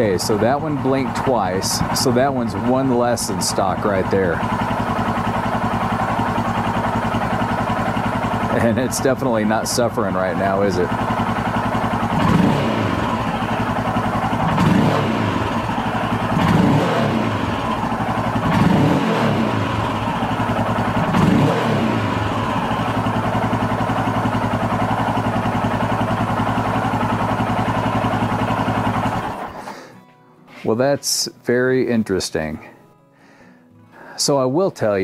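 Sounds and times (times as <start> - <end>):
motorcycle engine revving and idling: 0.0 - 29.9.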